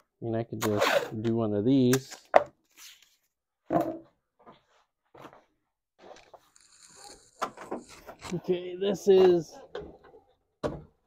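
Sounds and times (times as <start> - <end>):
cardboard and tape handling: 6.0 - 8.4.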